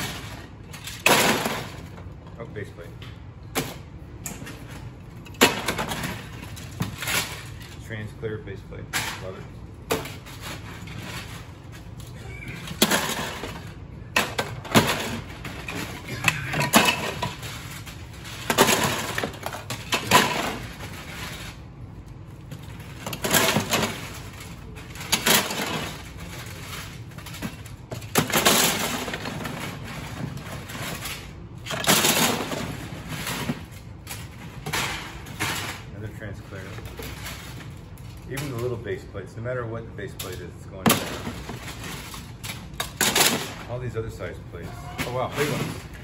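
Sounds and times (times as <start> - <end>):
plastic plates clattering: 12.5 - 21.6, 22.7 - 35.9.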